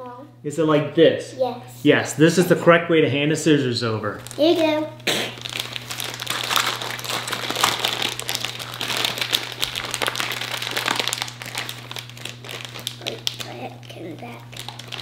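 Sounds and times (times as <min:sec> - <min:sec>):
plastic bag crinkling: 0:04.2 - 0:15.0.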